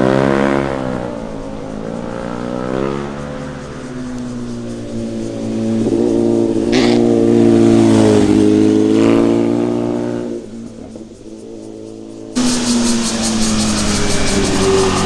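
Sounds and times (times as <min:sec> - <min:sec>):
motorcycle passing at speed: 0:00.0 - 0:15.0
exhaust burst: 0:12.4 - 0:15.0.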